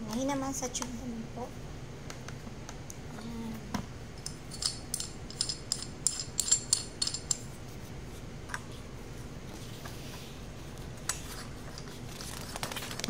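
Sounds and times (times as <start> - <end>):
stock tube clicking and rattling: 4.2 - 7.4.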